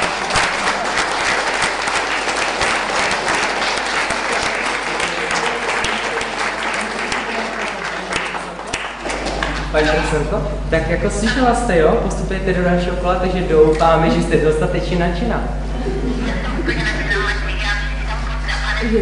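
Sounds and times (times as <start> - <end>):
audience applauding: 0.0 - 10.1.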